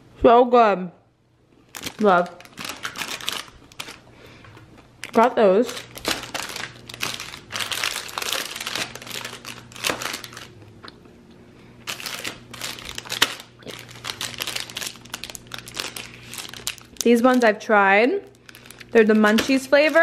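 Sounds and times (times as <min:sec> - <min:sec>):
wrappers crinkling: 0:01.6 - 0:04.1, 0:04.7 - 0:10.6, 0:11.8 - 0:20.0.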